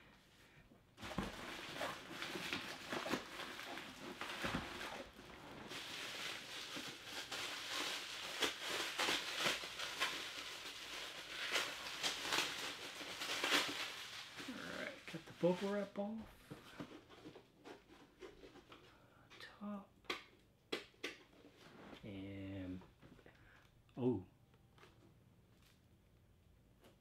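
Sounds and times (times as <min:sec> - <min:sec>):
bubble wrap crinkling: 0:01.0 - 0:16.2.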